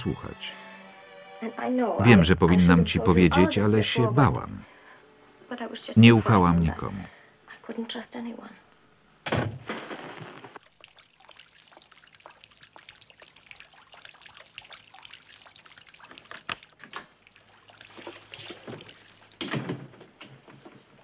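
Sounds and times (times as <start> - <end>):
faint trickling water: 10.6 - 19.4.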